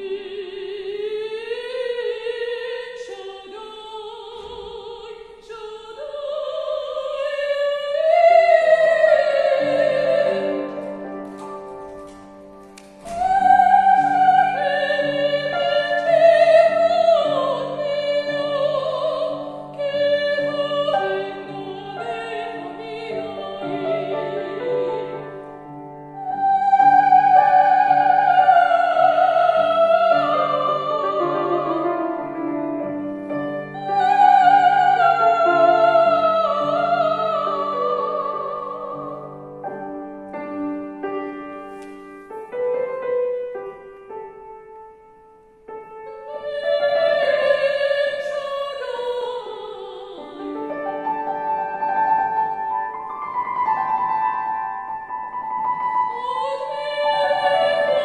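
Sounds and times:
woman singing operatically: 0:00.0 - 0:10.7, 0:13.2 - 0:25.4, 0:26.2 - 0:32.4, 0:33.6 - 0:39.4, 0:46.2 - 0:51.4, 0:56.0 - 0:58.0
grand piano: 0:00.0 - 0:58.0.

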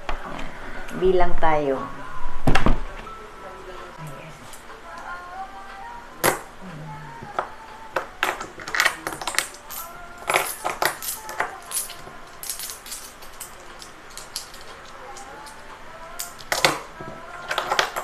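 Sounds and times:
coins clinking: 0:08.0 - 0:15.6.

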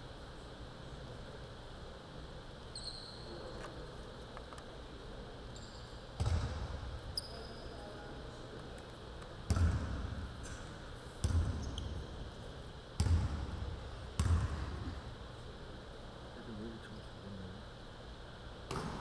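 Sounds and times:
basketball bouncing on hardwood floor: 0:06.2 - 0:06.6, 0:09.5 - 0:10.0, 0:11.2 - 0:11.9, 0:13.0 - 0:13.4, 0:14.2 - 0:14.7.

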